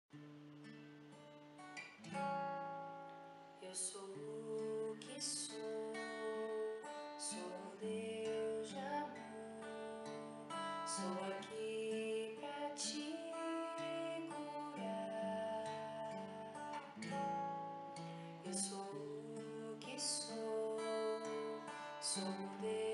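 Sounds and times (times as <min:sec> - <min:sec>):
acoustic guitar strummed: 0:00.1 - 0:22.9
young woman singing: 0:03.6 - 0:17.1, 0:18.3 - 0:22.9.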